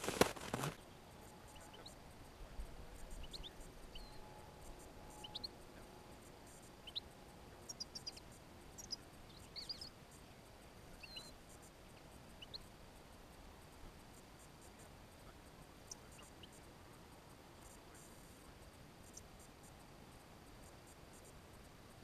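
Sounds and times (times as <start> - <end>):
finches chirping: 2.9 - 10.0, 10.8 - 11.6, 12.2 - 12.7.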